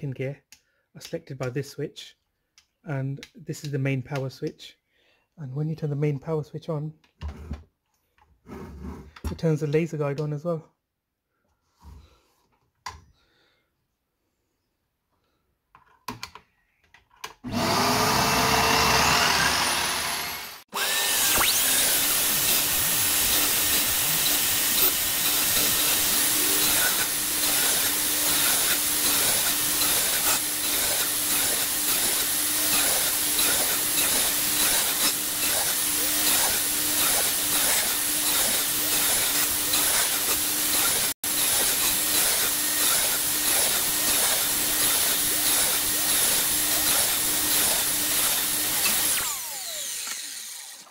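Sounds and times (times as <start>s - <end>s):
mitre saw whining: 17.4s - 50.9s
vacuum cleaner running: 17.5s - 50.9s.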